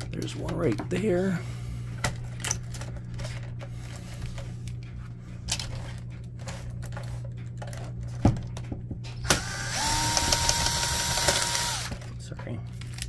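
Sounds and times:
electric screwdriver motor whining: 9.2 - 12.0.

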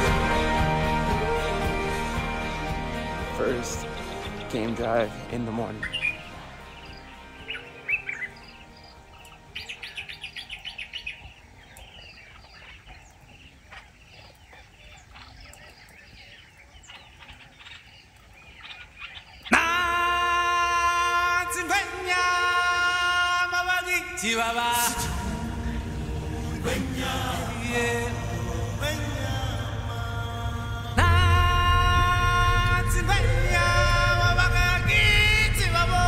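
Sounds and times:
loud chant-like music: 0.0 - 8.6, 19.5 - 36.0
birds chirping and trilling: 0.0 - 36.0.

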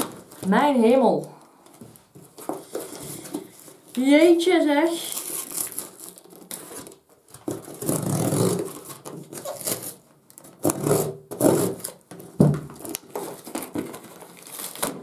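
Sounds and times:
parcel packaging ripping: 4.8 - 15.0.

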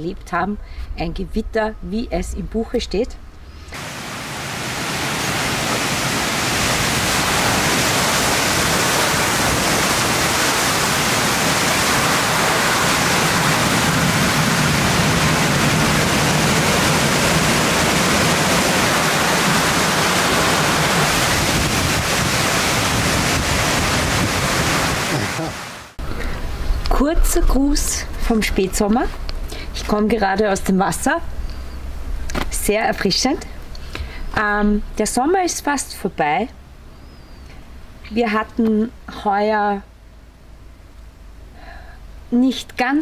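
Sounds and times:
wind gusting through trees: 3.5 - 34.4
heavy rain pouring: 3.8 - 26.0.

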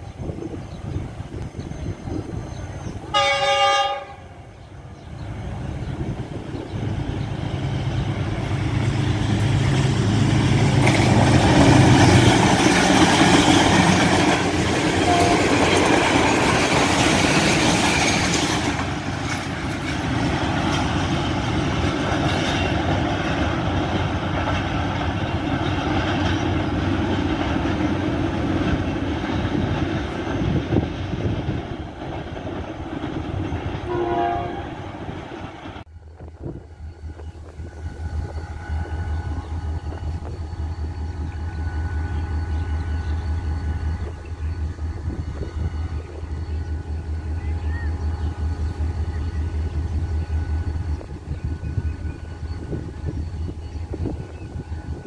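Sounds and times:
locomotive engine hum: 0.0 - 55.0
locomotive horn: 3.1 - 4.5, 15.0 - 15.9, 33.8 - 35.1, 37.5 - 44.1
train wheels clattering on rails: 5.2 - 35.9.

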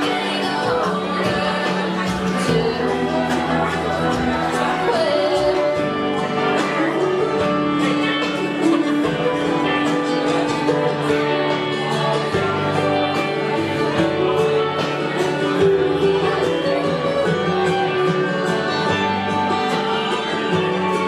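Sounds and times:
plucked acoustic guitar: 0.0 - 21.0
song over loudspeakers: 0.0 - 21.0.

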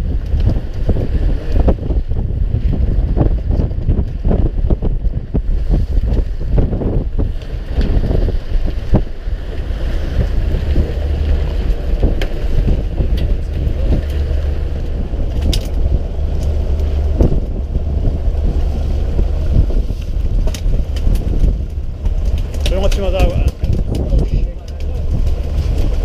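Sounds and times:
boat engine low rumble: 0.0 - 26.0
wind buffeting microphone: 0.0 - 26.0.

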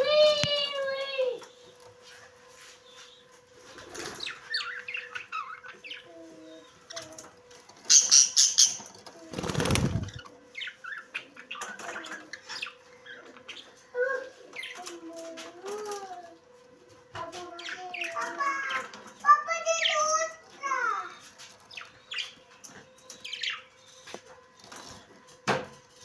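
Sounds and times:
parrots chirping and calling: 4.0 - 14.9, 17.6 - 20.3
wings flapping: 9.1 - 10.3.

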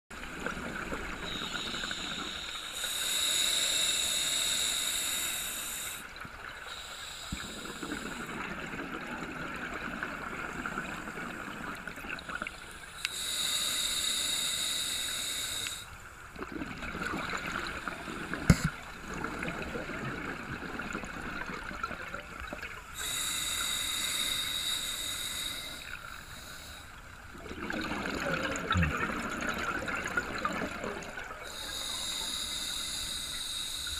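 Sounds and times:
regulator hiss and gurgle: 0.1 - 33.9
exhaled bubbles rushing underwater: 16.4 - 22.8, 27.3 - 31.6.

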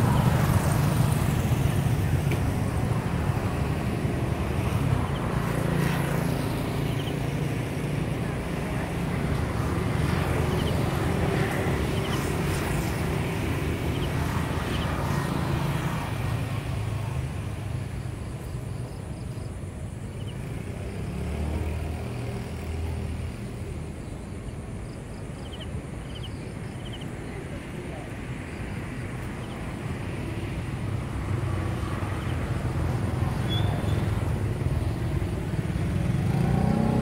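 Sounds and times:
distant road traffic rumble: 0.0 - 37.0.

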